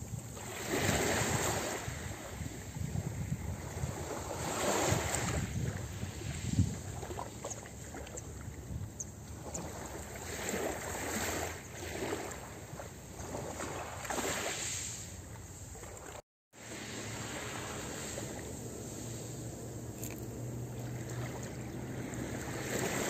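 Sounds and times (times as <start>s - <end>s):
waves washing onto pebble beach: 16.6s - 23.0s.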